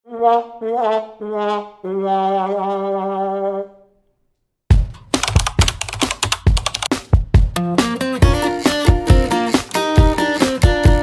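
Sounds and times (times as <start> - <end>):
sad trombone brass notes: 0.1 - 3.7
rhythmic music with strummed hits: 4.7 - 11.0.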